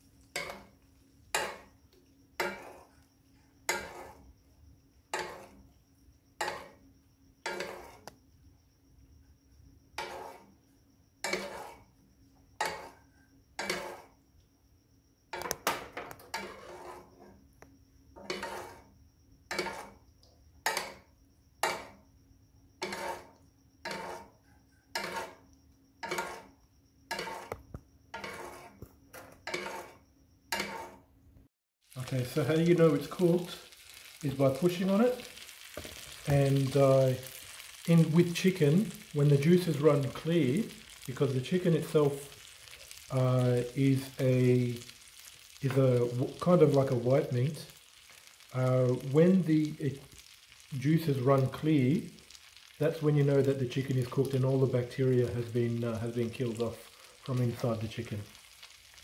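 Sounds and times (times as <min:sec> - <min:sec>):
metal spoon scraping frying pan: 0:00.3 - 0:00.7, 0:01.3 - 0:01.7, 0:02.4 - 0:03.0, 0:03.6 - 0:04.2, 0:05.1 - 0:05.6, 0:06.4 - 0:06.8, 0:07.4 - 0:08.1, 0:10.0 - 0:10.4, 0:11.2 - 0:11.8, 0:12.6 - 0:13.0, 0:13.6 - 0:14.1, 0:16.2 - 0:17.3, 0:18.2 - 0:18.9, 0:19.5 - 0:20.0, 0:21.6 - 0:22.0, 0:22.8 - 0:25.4, 0:26.0 - 0:31.0, 0:32.0 - 0:52.8.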